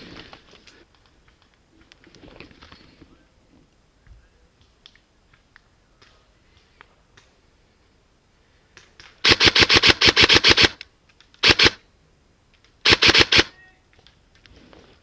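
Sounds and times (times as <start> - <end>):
airsoft gun firing bursts: 9.2 - 10.8, 11.4 - 11.8, 12.8 - 13.5.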